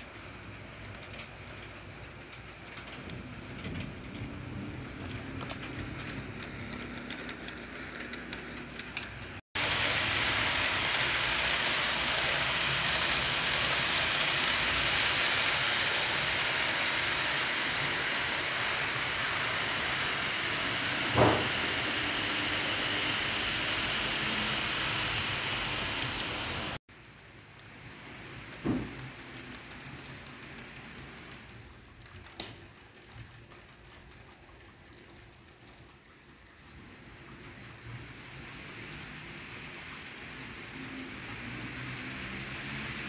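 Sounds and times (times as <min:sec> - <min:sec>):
model train wheels hissing: 0:04.2 - 0:26.8.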